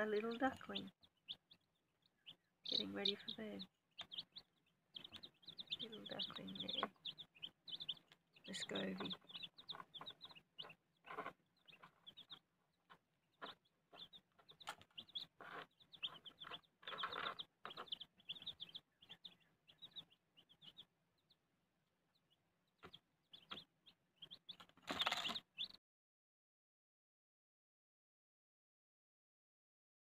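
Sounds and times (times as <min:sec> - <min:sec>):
chicks peeping: 0:00.0 - 0:25.8
rustling: 0:09.0 - 0:18.4, 0:24.5 - 0:25.4.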